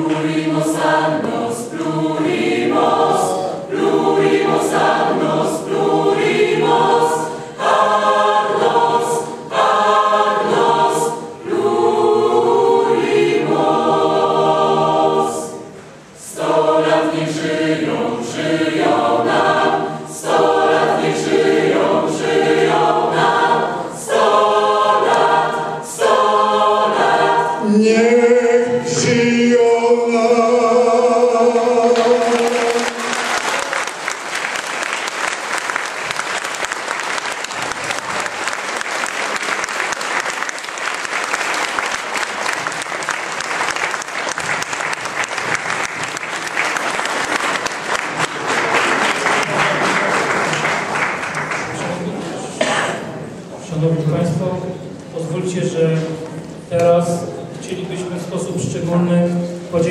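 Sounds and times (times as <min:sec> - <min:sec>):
choir singing: 0:00.0 - 0:53.4
audience applause: 0:32.0 - 0:52.0.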